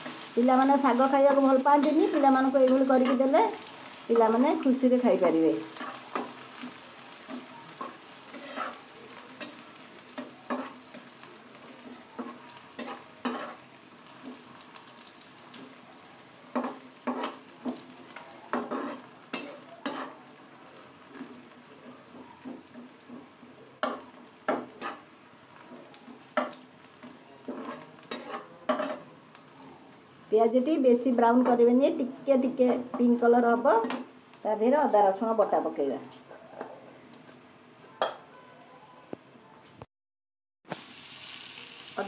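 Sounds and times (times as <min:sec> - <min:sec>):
onions sizzling in oil: 0:00.0 - 0:36.3, 0:40.7 - 0:42.0
spatula scraping pan: 0:05.7 - 0:14.5, 0:16.5 - 0:20.4, 0:22.0 - 0:25.1, 0:26.3 - 0:29.1.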